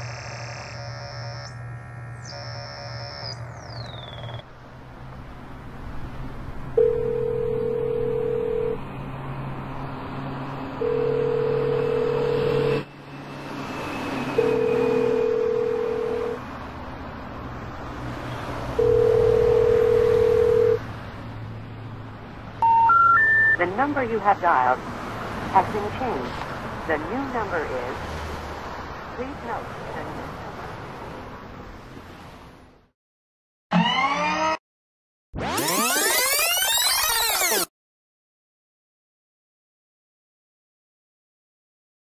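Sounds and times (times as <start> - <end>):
telephone ringback tone: 2.2 - 3.4, 6.8 - 8.8, 10.8 - 12.8, 14.4 - 16.4, 18.8 - 20.8, 22.6 - 23.7.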